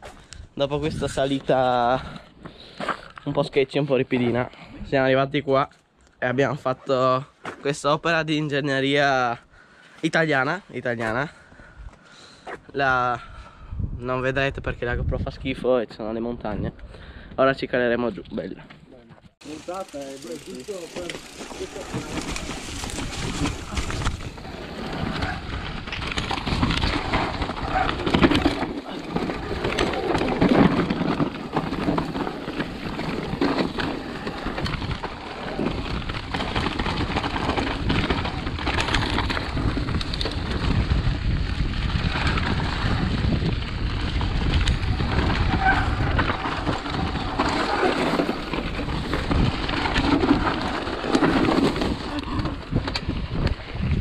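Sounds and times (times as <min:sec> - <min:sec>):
wind rushing over microphone: 0:00.0 - 0:02.1, 0:13.3 - 0:15.7, 0:21.7 - 0:54.0
bike knocks and rattles: 0:19.4 - 0:54.0
tyres rumbling over dirt and rocks: 0:19.4 - 0:54.0.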